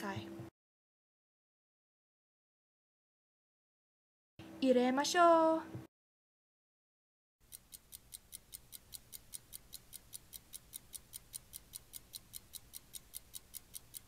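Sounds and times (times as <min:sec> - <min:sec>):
fast clock ticking: 0:07.4 - 0:14.0.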